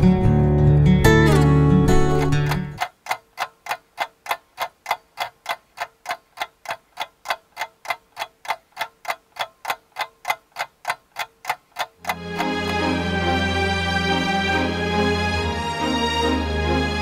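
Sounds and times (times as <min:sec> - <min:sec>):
clock-like ticking: 0:01.9 - 0:13.2.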